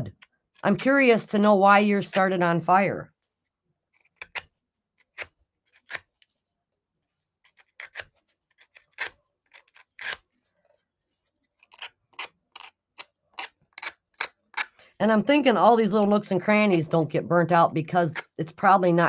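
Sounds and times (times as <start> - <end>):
hand tool scraping wood: 7.4 - 10.2.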